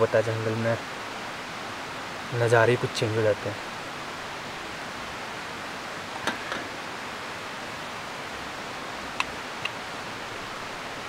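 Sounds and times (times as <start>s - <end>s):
camping lantern hissing: 0.0s - 11.0s
light clicks and knocks: 6.2s - 6.7s.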